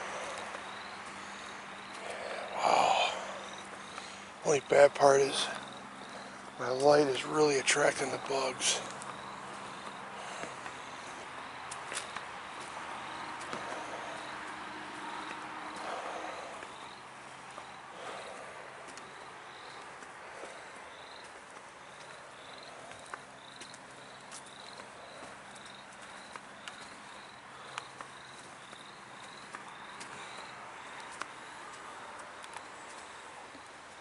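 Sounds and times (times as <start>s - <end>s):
cricket chirping: 0.0s - 34.0s.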